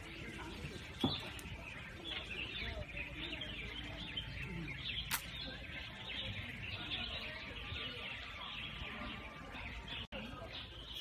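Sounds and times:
small birds twittering: 0:00.0 - 0:11.0
sharp click: 0:05.1 - 0:05.4.

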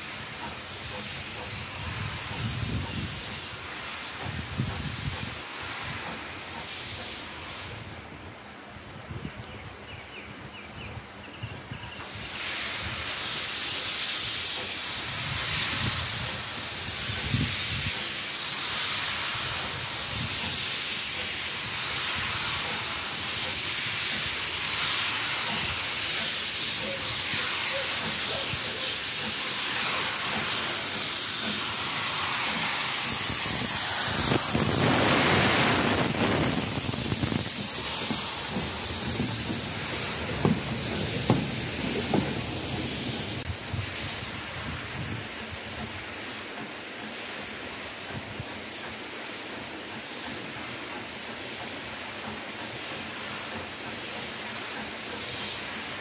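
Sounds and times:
steam locomotive hissing: 0:00.0 - 0:56.0.

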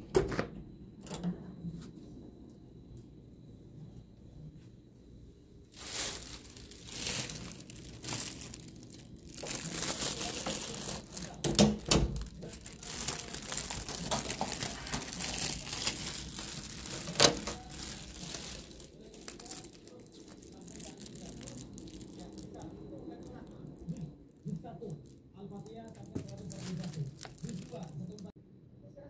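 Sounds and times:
plastic bag crinkling: 0:05.7 - 0:28.3.

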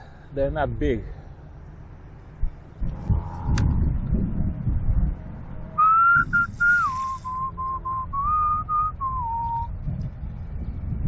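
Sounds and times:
man whistling a tune: 0:05.8 - 0:09.7
brief hiss: 0:06.2 - 0:07.5.

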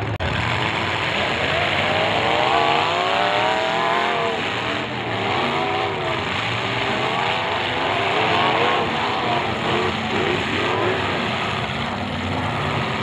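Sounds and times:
car engines revving: 0:00.0 - 0:13.0
noisy din: 0:00.0 - 0:13.0.

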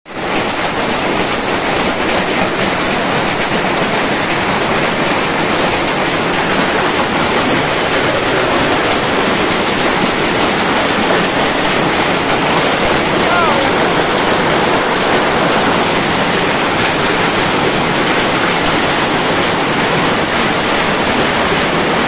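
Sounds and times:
hail clattering on tin roof: 0:00.1 - 0:22.0.

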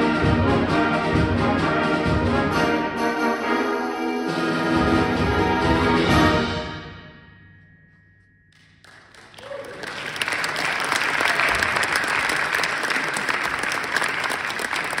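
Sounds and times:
audience applause: 0:08.8 - 0:15.0.

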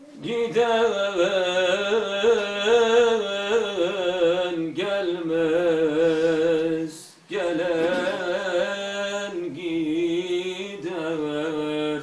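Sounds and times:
person singing a hymn: 0:00.0 - 0:12.0.

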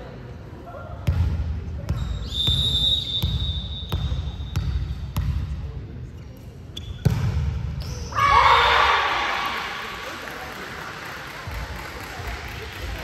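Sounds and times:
referee's whistle: 0:02.0 - 0:04.6
people shouting: 0:08.2 - 0:09.6.

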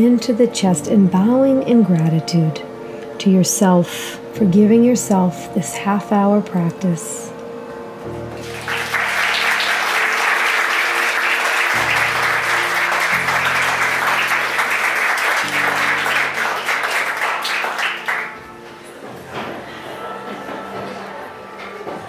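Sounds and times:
soft music with held chords: 0:00.0 - 0:22.0
people clapping: 0:08.3 - 0:18.6.

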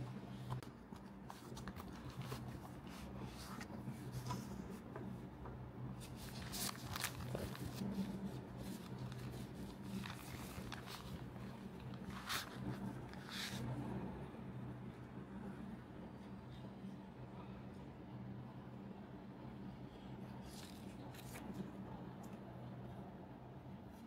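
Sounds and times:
plastic packaging crinkling: 0:06.3 - 0:13.2.

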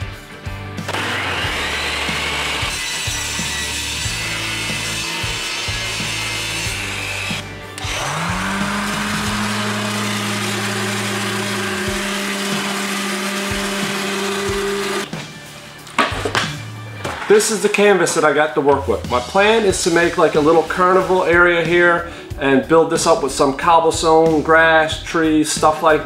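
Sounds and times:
electric sander whining: 0:00.8 - 0:15.1
table saw cutting plywood: 0:00.8 - 0:15.1.

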